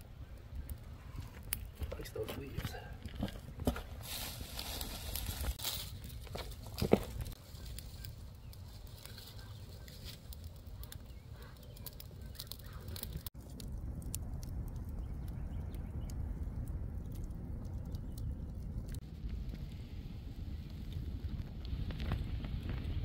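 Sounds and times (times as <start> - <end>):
campfire crackling and popping: 0.0 - 23.0
wind rumble on microphone: 12.8 - 23.0.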